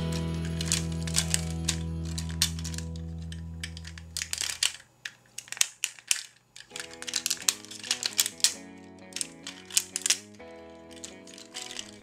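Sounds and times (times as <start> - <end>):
background music: 0.0 - 3.3
plastic toy parts clicking: 0.1 - 12.0.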